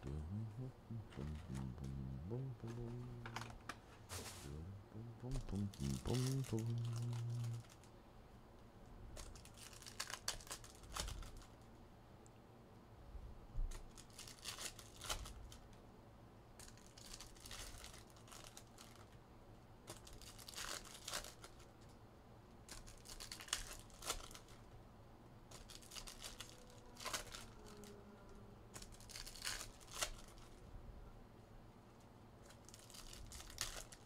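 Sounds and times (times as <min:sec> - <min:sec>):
foil wrappers tearing and crinkling: 0:05.5 - 0:07.9, 0:09.2 - 0:11.6, 0:13.7 - 0:15.6, 0:16.6 - 0:19.2, 0:19.9 - 0:21.7, 0:22.6 - 0:24.7, 0:25.5 - 0:27.8, 0:28.8 - 0:30.6, 0:32.5 - 0:34.0.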